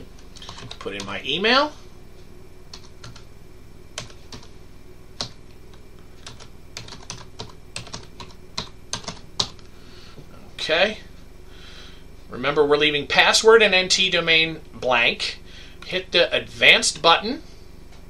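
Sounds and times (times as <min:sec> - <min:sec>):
computer keyboard typing: 0:00.4 - 0:01.2, 0:02.7 - 0:03.2, 0:04.0 - 0:04.5, 0:05.2 - 0:09.6.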